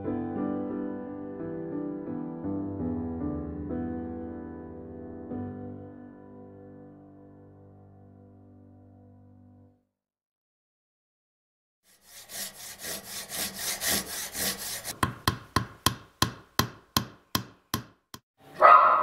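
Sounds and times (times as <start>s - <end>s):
hand saw cutting wood: 11.9s - 15.1s
hammer knocks: 14.8s - 18.0s
dog bark: 18.5s - 19.0s.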